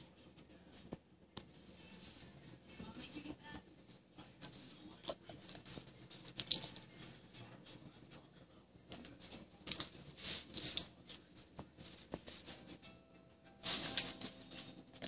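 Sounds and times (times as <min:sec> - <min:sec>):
rustling on carpet: 0:11.4 - 0:12.9.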